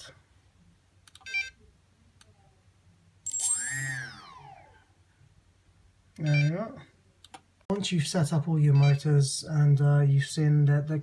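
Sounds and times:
short beep: 3.3 - 4.1
electric motor whine rising and falling: 3.3 - 4.9.

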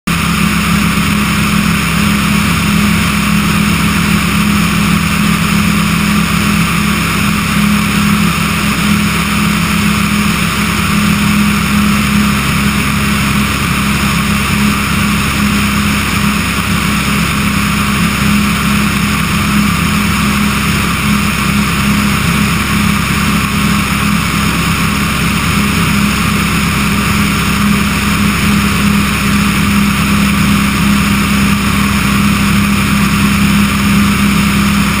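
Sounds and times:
aircraft engine and propeller droning: 0.1 - 35.0.

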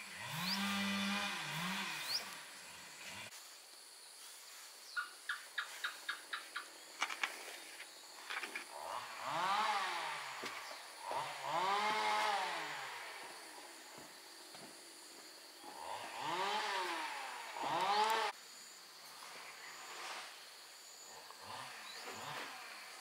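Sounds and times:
chainsaw revving: 0.0 - 3.4, 8.2 - 14.1, 15.6 - 18.4, 19.8 - 20.4, 21.1 - 23.0.

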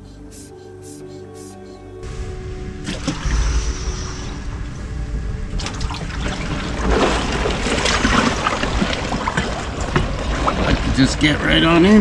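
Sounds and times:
water sloshing and splashing: 2.8 - 3.7, 5.5 - 12.0.

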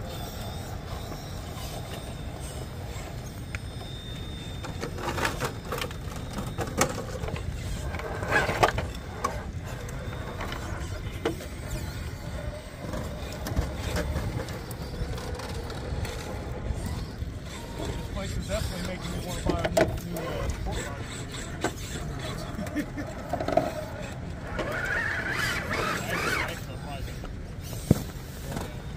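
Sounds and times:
electric motor whine: 0.0 - 28.7.

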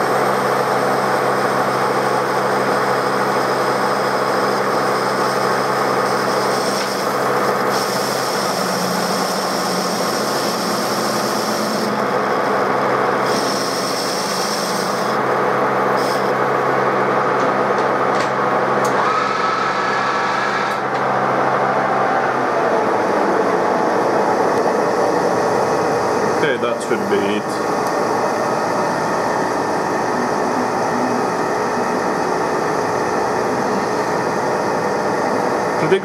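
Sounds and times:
lathe cutting metal: 0.0 - 36.0
metal lathe humming: 0.0 - 36.0.

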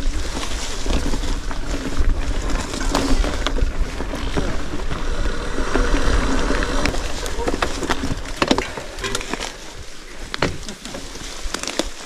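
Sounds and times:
wind buffeting microphone: 0.0 - 11.6
clicks and knocks: 8.4 - 9.6.

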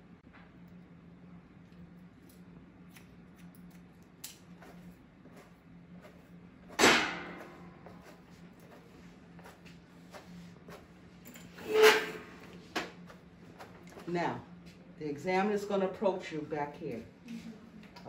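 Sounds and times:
scissors snipping hair: 2.2 - 4.5
loud sharp knock: 6.8 - 7.5.

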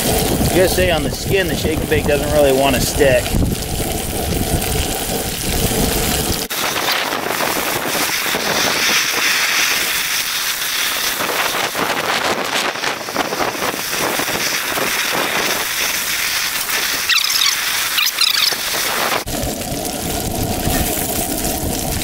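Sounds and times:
fish frying in butter: 0.0 - 22.0.

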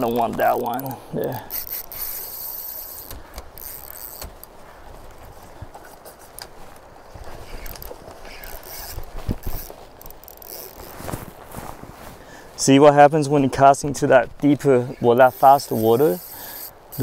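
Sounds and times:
fishing reel cranking: 0.5 - 4.6, 7.4 - 11.0, 15.1 - 17.0.

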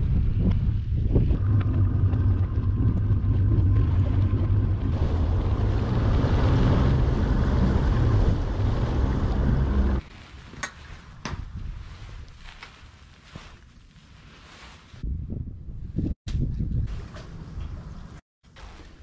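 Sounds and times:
wind buffeting microphone: 0.0 - 10.0, 15.0 - 18.2
boat engine running: 1.2 - 10.0.

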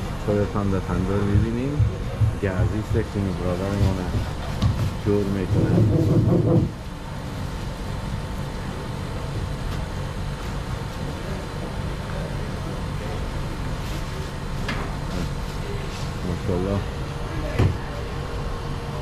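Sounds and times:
low background rumble: 0.0 - 10.2
faint mechanical hum: 0.0 - 19.0
faint distant voices: 10.8 - 19.0.

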